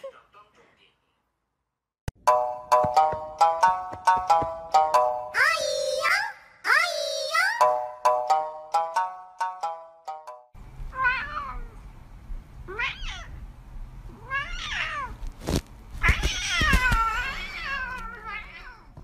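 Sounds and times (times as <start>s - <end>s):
plinking music tune: 2.2s - 5.3s, 7.6s - 10.5s
cat meowing: 10.9s - 11.8s, 12.7s - 13.4s, 14.1s - 15.2s.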